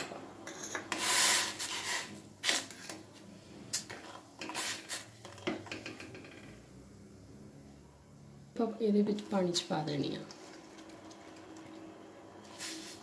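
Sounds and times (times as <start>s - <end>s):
spoon scraping a metal saucepan: 0.4s - 3.0s, 3.7s - 5.8s.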